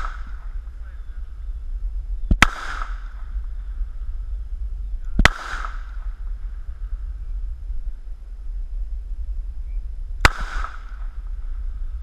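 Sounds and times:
gunshots with echo: 0:00.0 - 0:00.5, 0:02.3 - 0:03.3, 0:05.2 - 0:06.2, 0:10.2 - 0:11.2.

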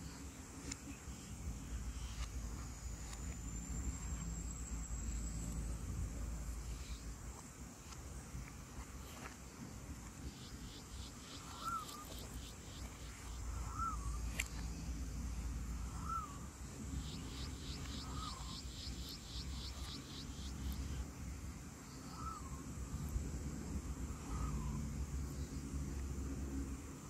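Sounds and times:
low outdoor rumble: 0:00.0 - 0:27.0
high pulsing bird call: 0:11.3 - 0:12.6, 0:13.5 - 0:14.2, 0:15.9 - 0:16.4, 0:17.0 - 0:20.5.

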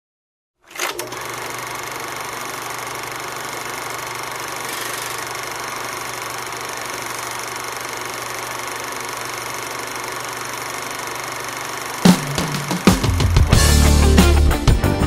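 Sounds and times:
film projector whirring clatter: 0:00.6 - 0:13.4.

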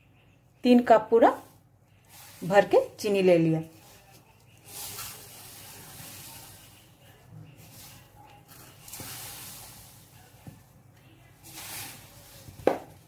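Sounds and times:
sugar pouring hiss: 0:01.9 - 0:03.0, 0:03.7 - 0:10.6, 0:11.4 - 0:12.8.

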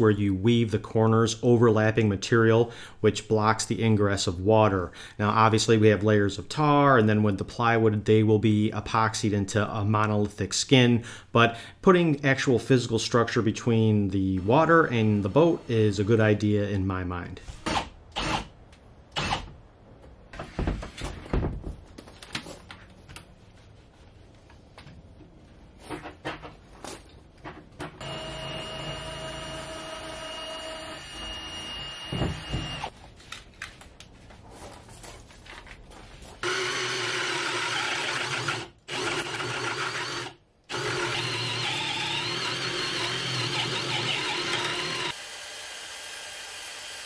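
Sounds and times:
cordless drill boring into wood: 0:28.0 - 0:32.9, 0:36.4 - 0:47.0
small power tool running: 0:28.0 - 0:32.9, 0:36.4 - 0:47.0.

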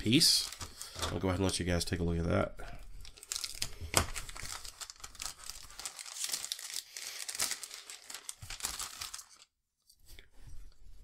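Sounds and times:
plastic bag crinkling: 0:00.0 - 0:01.4, 0:03.0 - 0:09.6.

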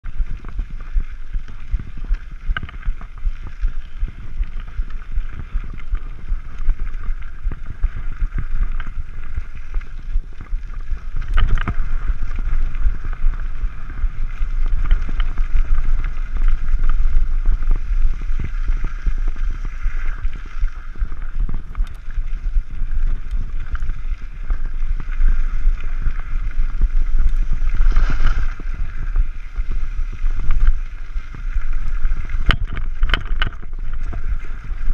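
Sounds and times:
bike rattling on rough trail: 0:00.0 - 0:34.9
wind buffeting microphone: 0:00.0 - 0:34.9.

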